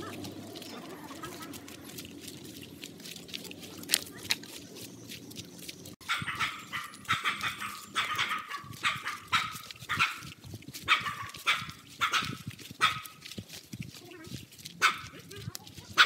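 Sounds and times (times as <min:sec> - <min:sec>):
dog barking: 0:06.0 - 0:13.2, 0:14.8 - 0:16.0.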